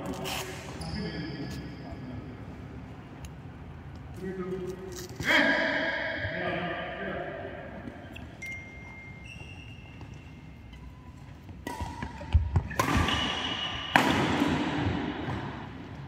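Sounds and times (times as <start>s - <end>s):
shoes squeaking on court: 0.0s - 2.3s, 7.8s - 13.9s
racket hitting shuttlecock: 11.4s - 16.0s.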